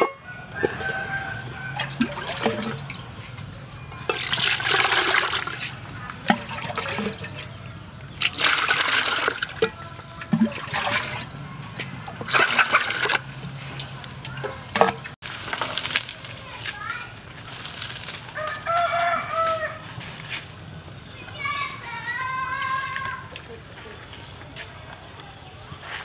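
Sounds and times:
water bubbling in metal pot: 0:00.0 - 0:03.2, 0:04.0 - 0:15.2.

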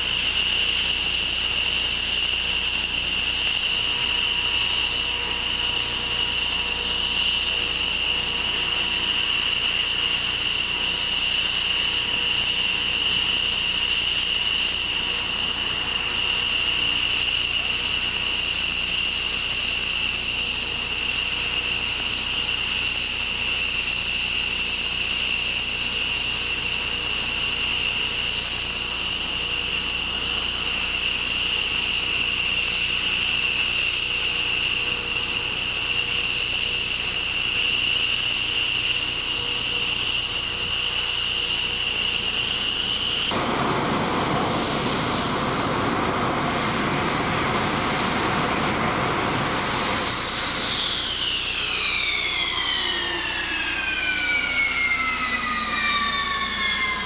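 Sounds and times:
jet engines idling: 0:42.6 - 0:57.0.

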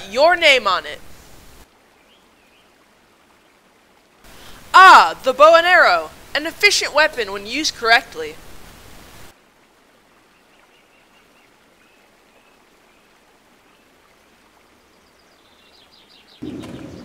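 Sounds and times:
faint steady hiss: 0:00.0 - 0:16.4
distant birds chirping: 0:10.1 - 0:17.0.

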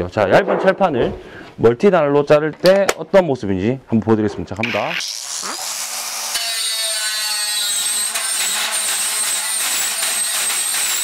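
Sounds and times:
angle grinder cutting sheet steel: 0:04.6 - 0:11.0.

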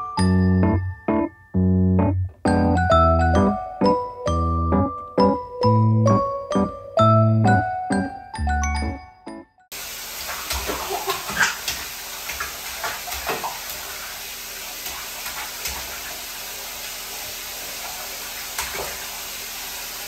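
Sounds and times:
water running into bathtub: 0:09.7 - 0:20.0
small splashes in water: 0:10.2 - 0:17.0, 0:17.6 - 0:19.2.

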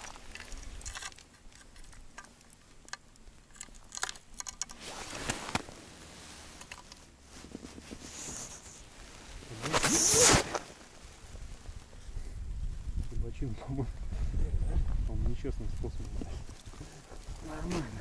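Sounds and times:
fabric rustling on microphone: 0:04.7 - 0:18.0
short swish: 0:09.6 - 0:10.6.

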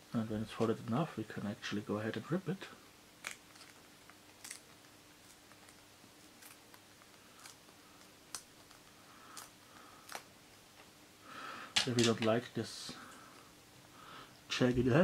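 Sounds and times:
paper tearing with small ticks: 0:03.2 - 0:10.3.

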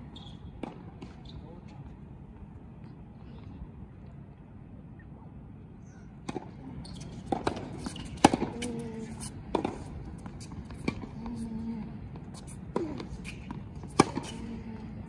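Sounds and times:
tennis ball bouncing on court: 0:00.6 - 0:01.2, 0:06.2 - 0:15.0
tennis ball hit by rackets: 0:06.2 - 0:11.4, 0:12.5 - 0:14.5.

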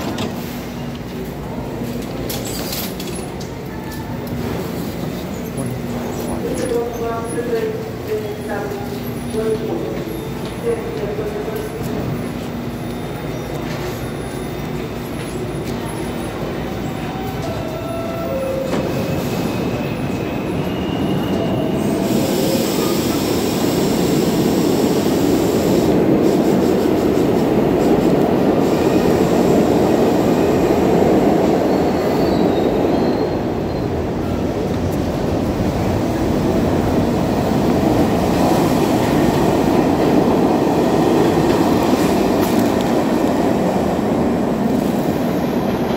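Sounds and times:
train wheels squealing: 0:12.2 - 0:23.7, 0:31.4 - 0:34.4.

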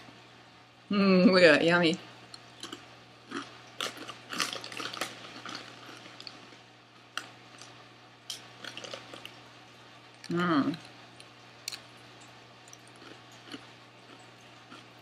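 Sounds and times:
potato chip crunching: 0:02.6 - 0:09.4, 0:12.7 - 0:15.0.

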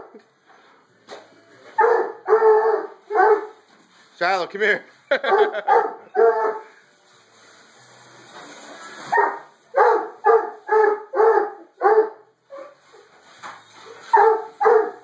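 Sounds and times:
dog barking: 0:01.8 - 0:03.6, 0:05.3 - 0:06.7, 0:09.1 - 0:12.8, 0:14.1 - 0:15.0.

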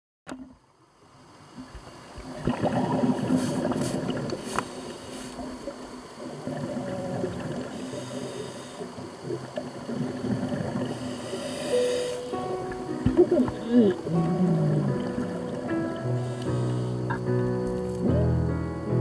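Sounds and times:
underwater air bubbles rushing: 0:01.7 - 0:08.2, 0:08.9 - 0:11.7, 0:12.6 - 0:17.2.

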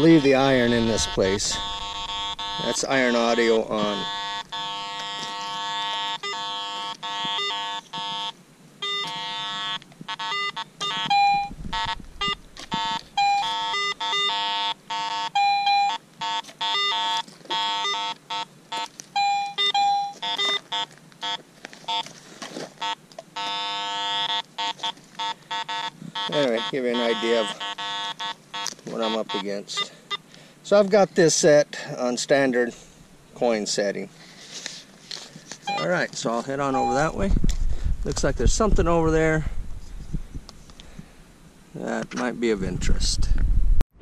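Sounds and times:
metal detector buzzy low tones: 0:00.0 - 0:22.1, 0:22.8 - 0:30.2
metal detector higher beeps: 0:00.0 - 0:22.1, 0:22.8 - 0:30.2, 0:35.6 - 0:36.0, 0:36.6 - 0:37.2.

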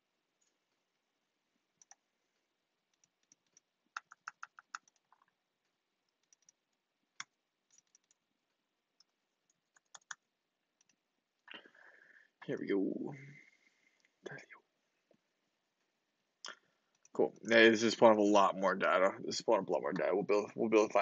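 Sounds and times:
computer keyboard typing: 0:01.8 - 0:02.0, 0:02.9 - 0:05.3, 0:06.1 - 0:08.2, 0:09.0 - 0:11.0.

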